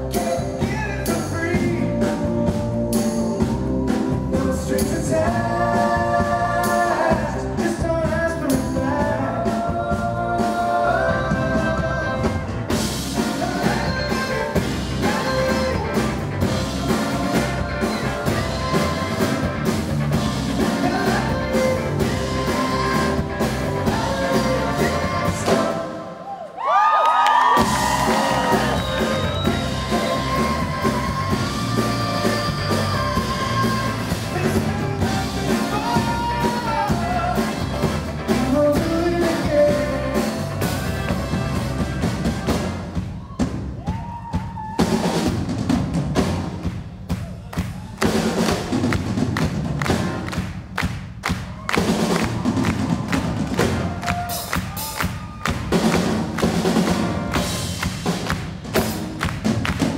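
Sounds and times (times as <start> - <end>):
live rock band playing: 0.0 - 26.1, 27.5 - 59.9
male lead singer: 0.0 - 26.2, 27.6 - 41.6
drums: 0.0 - 59.9.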